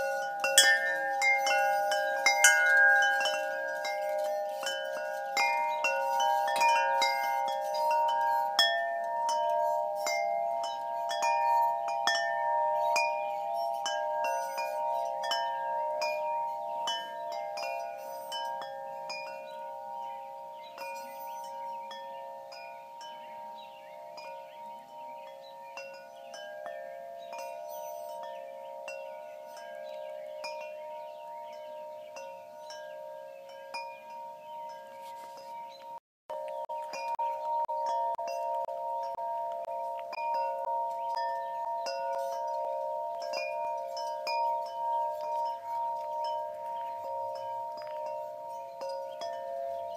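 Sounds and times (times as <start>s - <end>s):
wind chimes ringing: 0.0s - 49.9s.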